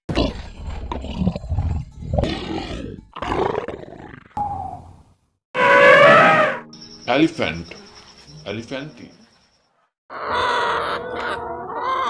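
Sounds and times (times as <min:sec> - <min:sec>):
lion roaring: 0:00.1 - 0:04.4
high-pitched animal call: 0:05.6 - 0:06.7, 0:10.1 - 0:12.0.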